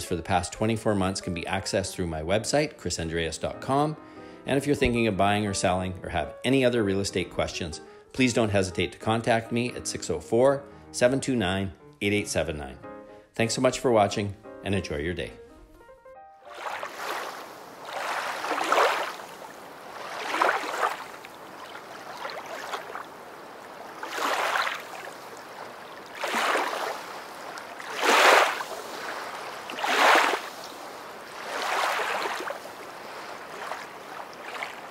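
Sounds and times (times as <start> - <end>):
small waves washing onto shore: 16.5 - 34.9.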